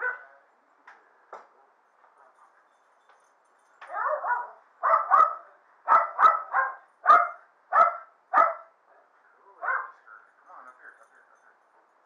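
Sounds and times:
dog barking: 0.0 - 0.3, 3.8 - 8.7, 9.6 - 10.0.

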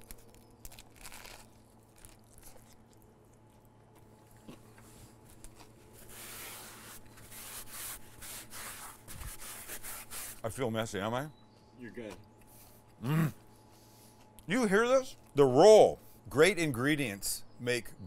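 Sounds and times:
person chewing crunchy food: 0.0 - 6.2.

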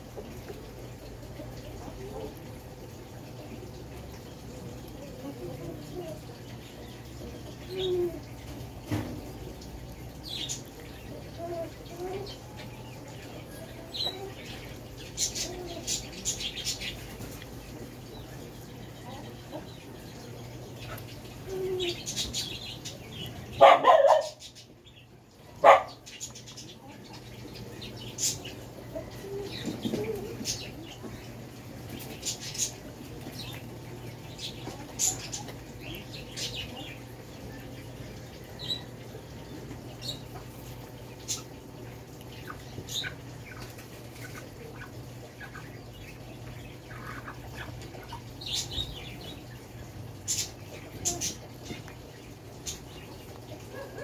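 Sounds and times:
dog barking: 23.6 - 24.4, 25.6 - 26.0, 53.7 - 54.0.

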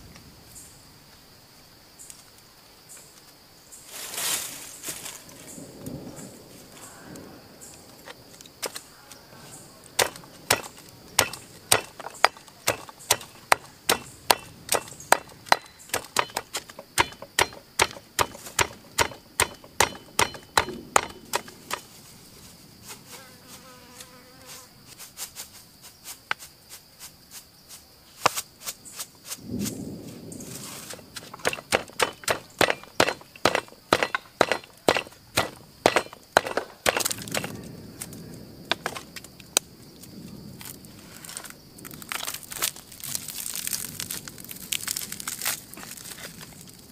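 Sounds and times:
high insect buzz: 0.0 - 46.9
stone pestle pounding in mortar: 10.0 - 21.4, 31.4 - 37.5.

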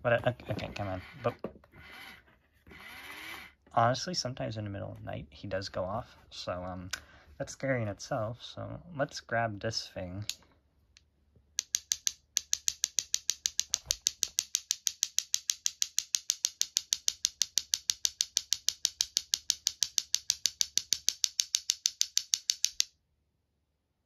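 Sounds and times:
wooden clacker toy clacking: 11.6 - 22.9.

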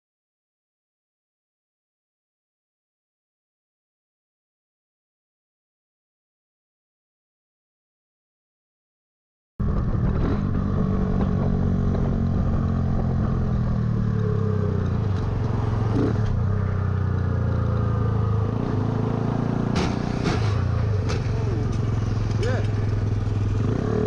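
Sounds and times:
motorcycle engine cruising: 9.6 - 24.0
wind and road noise: 9.6 - 24.0.

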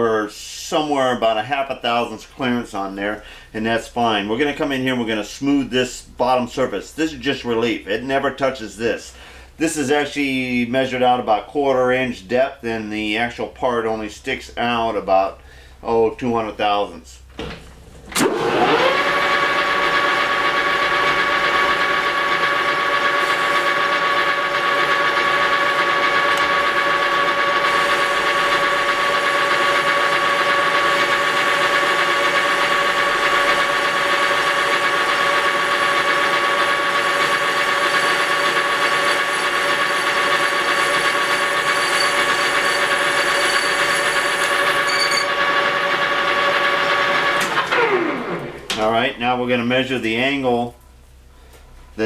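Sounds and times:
metal lathe whining: 18.2 - 48.7.

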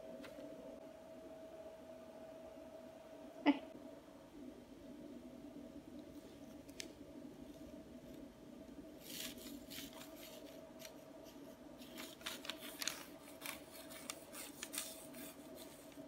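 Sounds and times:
low hum: 0.0 - 16.0
plastic bag crinkling: 11.8 - 16.0.

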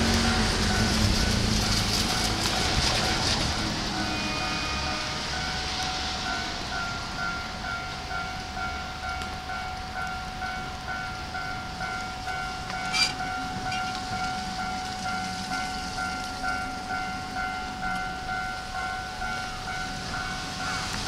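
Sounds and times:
diesel locomotive rumble: 0.0 - 21.0.

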